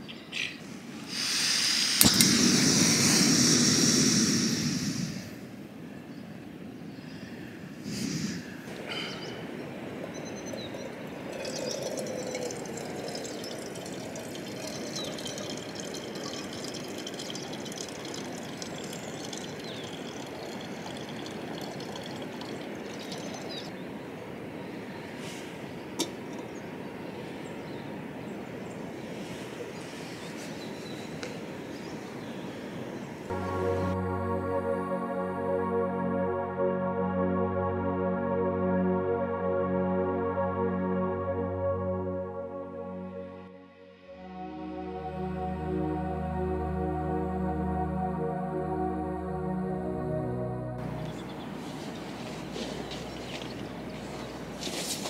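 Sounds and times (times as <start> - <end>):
sharp click: 2.0 - 3.1
small mountain river rushing: 8.1 - 25.0, 50.8 - 55.0.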